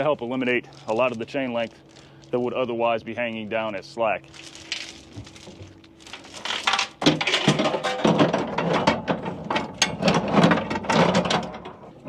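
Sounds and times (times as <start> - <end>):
metal chain clinking and rattling: 4.4 - 8.9.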